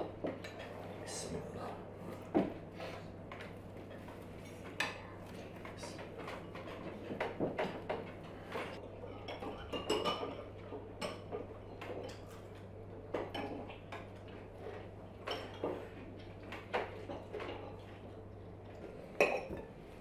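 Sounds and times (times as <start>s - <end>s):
cutlery clinking on plates: 6.2s - 12.5s, 19.2s - 19.8s.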